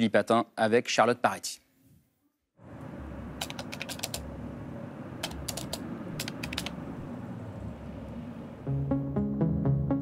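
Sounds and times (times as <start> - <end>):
low steady hum: 2.6 - 9.3
keyboard key clicks: 3.4 - 4.2, 5.2 - 6.8.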